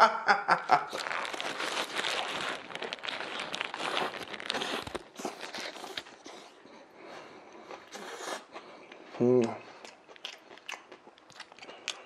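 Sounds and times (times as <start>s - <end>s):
paper wrapper crinkling: 0.9s - 6.6s
chewing a sandwich: 0.9s - 12.0s.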